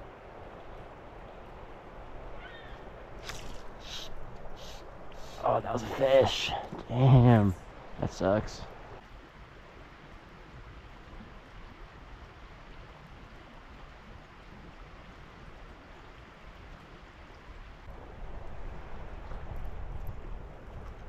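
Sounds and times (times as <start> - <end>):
river water rushing: 0.0 - 9.0.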